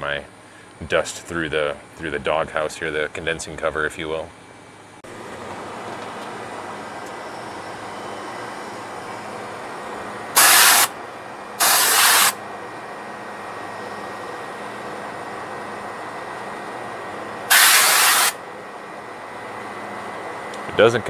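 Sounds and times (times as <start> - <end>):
condenser fan running: 0.0 - 21.0
compressed gas hissing blasts: 10.3 - 11.0, 11.6 - 12.4, 17.5 - 18.4.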